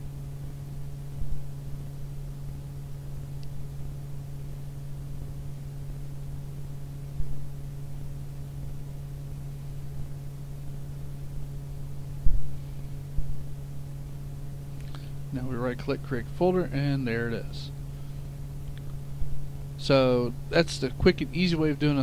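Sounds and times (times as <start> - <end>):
low electrical hum: 0.0 - 22.0
dull low thumps: 12.2 - 13.4.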